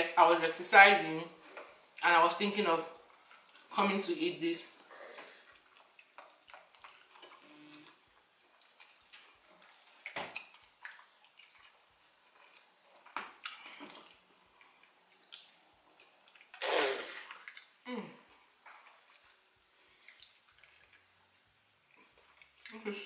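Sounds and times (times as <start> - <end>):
wet chewing and lip-smacking: 5.4 - 16.6, 17.3 - 17.8, 18.5 - 23.0.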